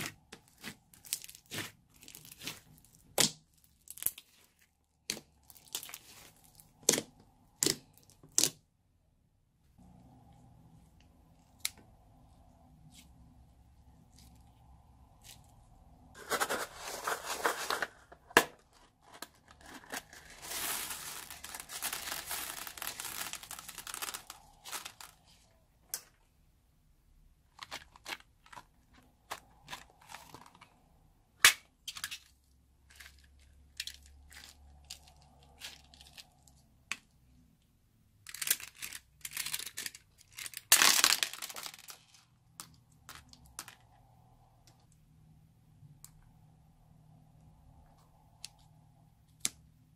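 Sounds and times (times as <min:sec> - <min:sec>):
crinkly rustling: 0:16.2 - 0:25.6.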